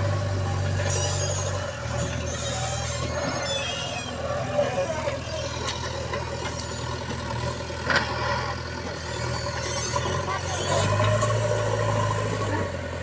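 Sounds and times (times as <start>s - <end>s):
diesel engine running: 0.0s - 13.0s
high squeaks: 0.1s - 6.9s.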